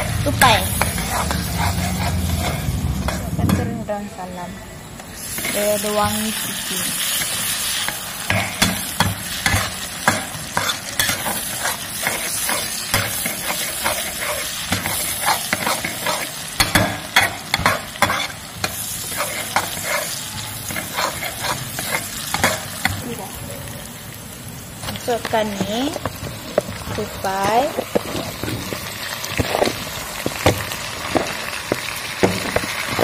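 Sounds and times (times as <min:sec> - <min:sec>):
food sizzling in hot oil: 0:00.0 - 0:33.0
metal spatula scraping a wok: 0:00.1 - 0:03.7, 0:05.2 - 0:22.9.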